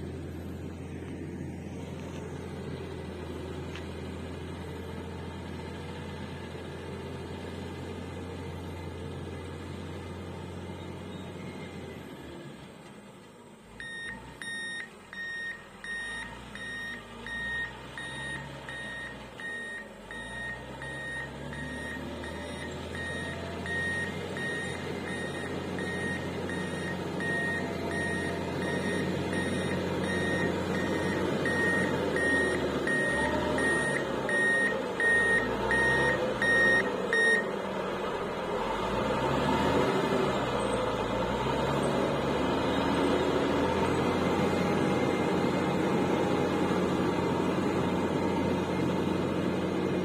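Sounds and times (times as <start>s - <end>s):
diesel engine running: 0.0s - 50.0s
reversing alarm beeping: 13.8s - 37.6s.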